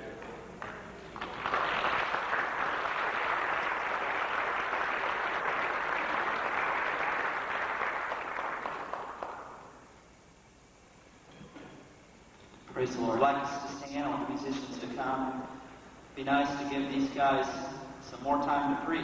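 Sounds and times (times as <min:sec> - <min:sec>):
congregation applauding: 0:00.0 - 0:09.8.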